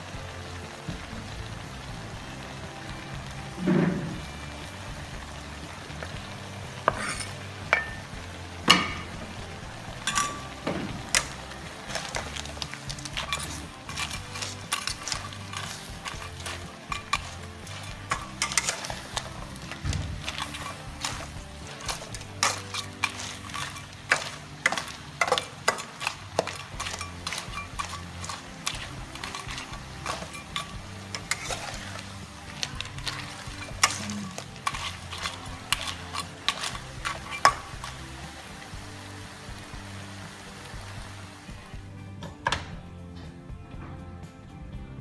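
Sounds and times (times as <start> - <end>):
food sizzling in pan: 0.0 - 42.4
metal clinking against wok: 6.8 - 9.4, 10.0 - 38.1
crab shells clattering: 10.0 - 38.1.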